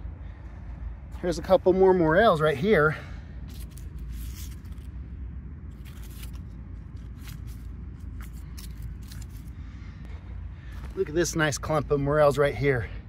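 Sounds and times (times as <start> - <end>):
low rumble: 0.0 - 11.2
knife scraping leaves and soil: 3.4 - 4.9, 5.7 - 9.6.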